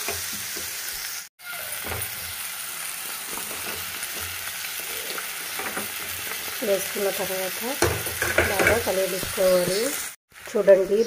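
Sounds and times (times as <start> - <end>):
masala sizzling in a frying pan: 0.0 - 11.0.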